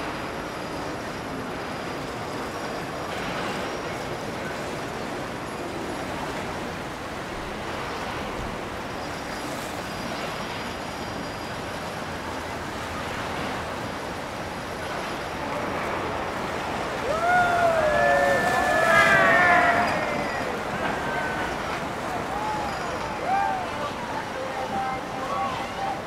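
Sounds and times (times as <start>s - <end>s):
motorboat running through water: 0.0s - 26.0s
loud voices calling out: 17.0s - 26.0s.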